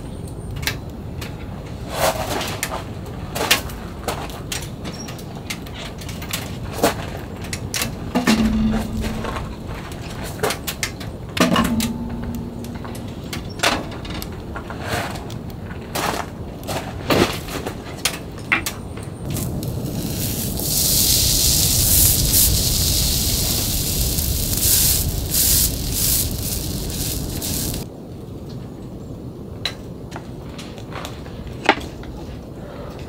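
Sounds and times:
steady high hiss: 0:07.9 - 0:14.1, 0:19.2 - 0:27.9
fire popping and crackling: 0:08.2 - 0:10.8, 0:19.2 - 0:27.9.

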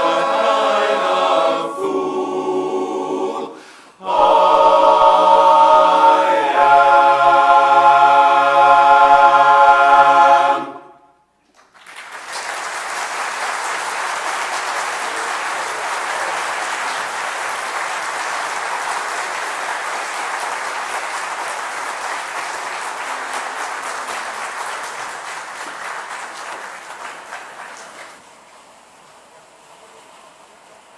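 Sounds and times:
large audience applauding: 0:11.4 - 0:28.2.

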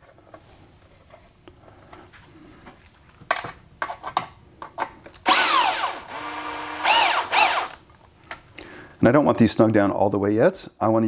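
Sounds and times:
cordless drill motor whine: 0:05.2 - 0:07.8.

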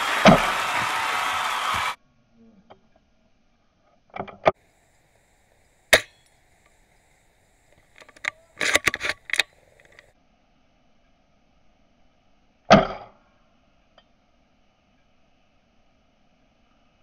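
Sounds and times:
airsoft rifle shot crack: 0:05.9 - 0:06.3
rifle bolt clacking: 0:07.9 - 0:10.0.

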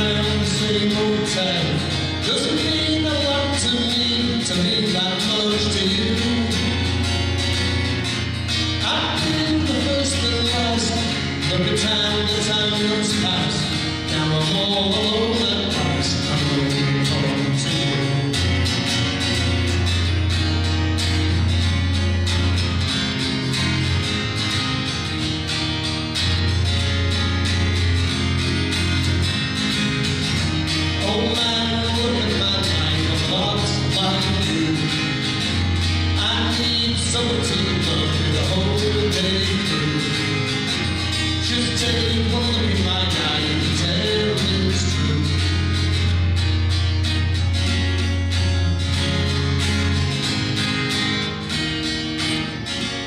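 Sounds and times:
man singing: 0:00.0 - 0:07.4, 0:08.6 - 0:19.3, 0:30.7 - 0:46.1
acoustic guitar: 0:00.0 - 0:53.0.

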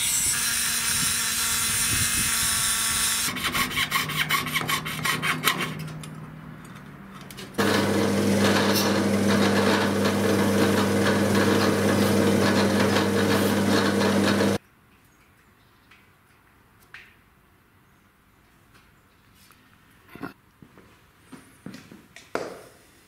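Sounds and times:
hand saw cutting brass: 0:00.0 - 0:05.8, 0:07.6 - 0:14.6
brass grinding on sanding drum: 0:07.6 - 0:14.6
drill press humming: 0:07.6 - 0:14.6.

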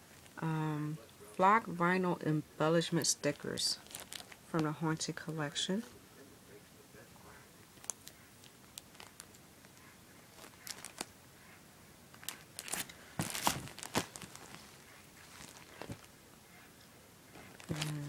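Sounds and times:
plastic packaging crinkling: 0:03.8 - 0:04.5, 0:07.8 - 0:11.2, 0:12.1 - 0:16.1, 0:17.4 - 0:18.0.

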